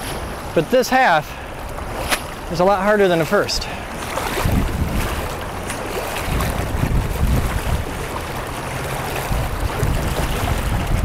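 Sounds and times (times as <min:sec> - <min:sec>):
river current rushing and splashing: 0:00.0 - 0:11.0
wind buffeting microphone: 0:03.5 - 0:11.0.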